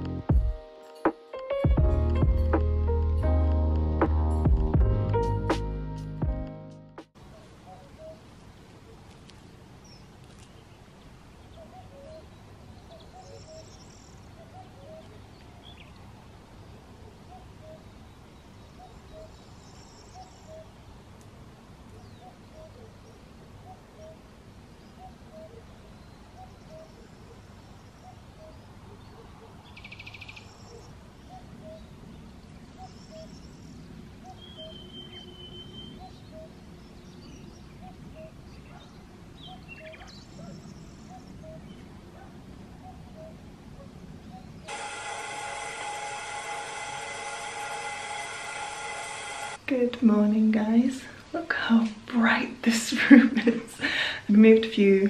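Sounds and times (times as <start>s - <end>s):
bird chirps: 7.3s - 8.3s, 11.4s - 16.0s, 17.3s - 20.8s, 22.0s - 41.9s, 42.8s - 43.4s
bird trill: 11.5s - 15.9s, 18.7s - 20.8s, 32.8s - 41.8s.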